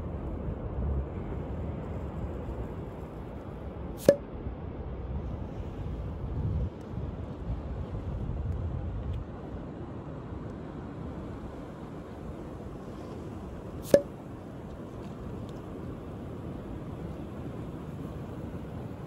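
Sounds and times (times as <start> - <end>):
wind rumbling on microphone: 0.0 - 19.0
sharp click: 4.0 - 4.2.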